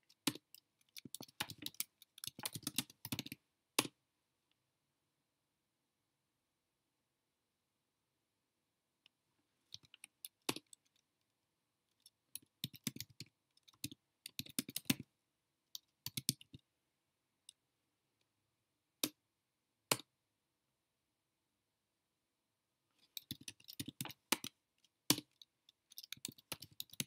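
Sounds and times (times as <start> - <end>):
computer keyboard typing: 0.0 - 3.4, 12.4 - 15.0, 15.8 - 16.6, 23.0 - 24.5, 25.1 - 27.0.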